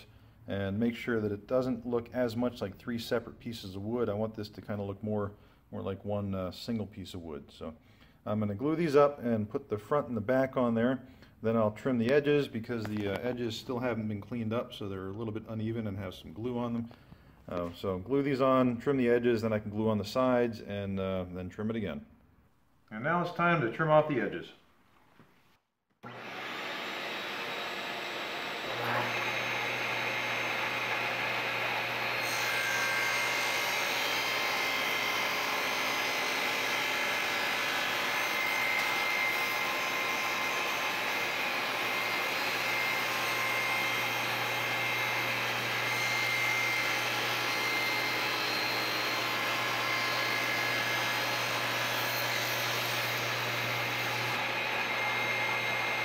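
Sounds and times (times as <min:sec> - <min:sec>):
saw blade cutting wood: 0:26.0 - 0:56.0
shop vacuum running: 0:26.0 - 0:56.0
table saw running: 0:26.0 - 0:56.0.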